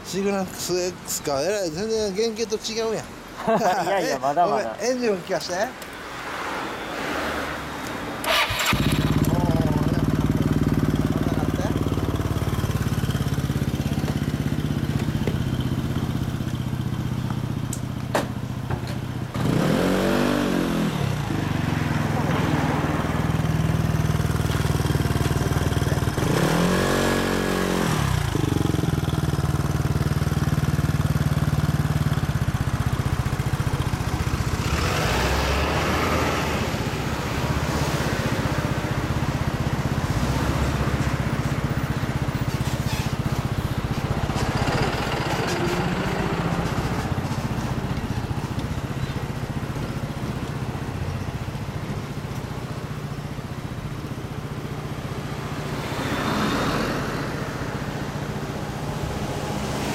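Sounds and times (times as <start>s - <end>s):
scooter engine idling: 8.2s - 19.6s, 21.0s - 34.8s, 38.2s - 40.1s, 40.7s - 55.8s.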